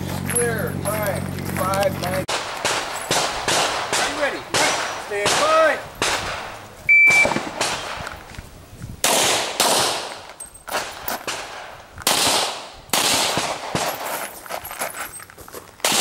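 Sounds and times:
handgun shots: 0:02.3 - 0:08.1, 0:09.0 - 0:14.2
shot timer beep: 0:06.9 - 0:07.4.

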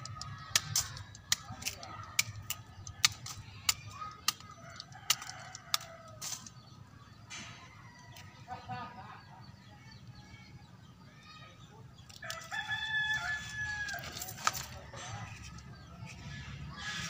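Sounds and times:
sharp handling clicks: 0:00.0 - 0:06.6
rooster crowing: 0:12.2 - 0:14.2.

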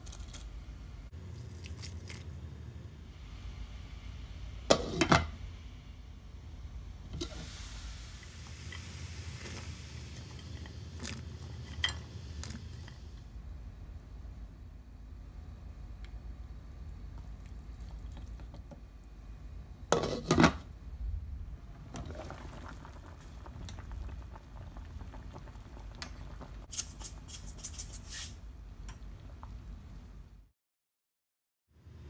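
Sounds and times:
soup bubbling in a pot: 0:07.1 - 0:27.6, 0:28.4 - 0:30.0.

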